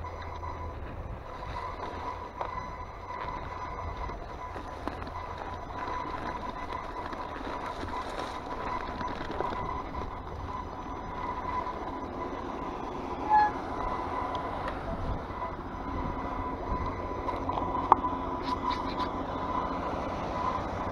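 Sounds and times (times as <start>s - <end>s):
bike tyres and frame rattling: 0.0s - 19.7s
high-pitched whine: 0.0s - 20.9s
short squeak: 13.2s - 14.3s, 16.8s - 19.2s.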